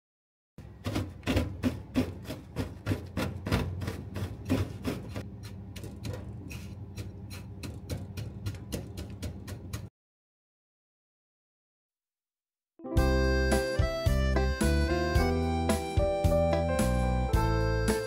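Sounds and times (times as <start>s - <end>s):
rolling pin pounding cookies: 0.6s - 9.9s.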